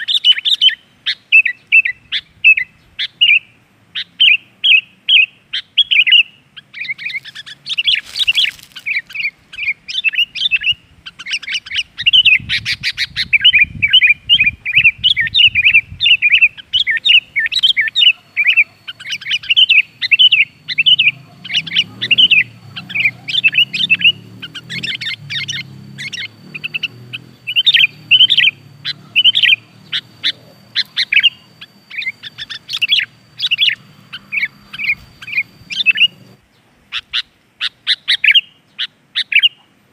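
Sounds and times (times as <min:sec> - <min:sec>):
bird chattering and singing: 0:00.0 - 0:39.6
faint steady high tone: 0:13.4 - 0:36.4.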